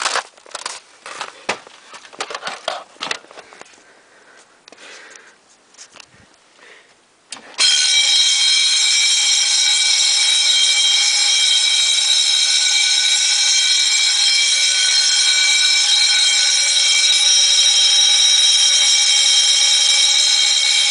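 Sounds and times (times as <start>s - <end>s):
electric fire alarm bells ringing: 7.6s - 20.9s.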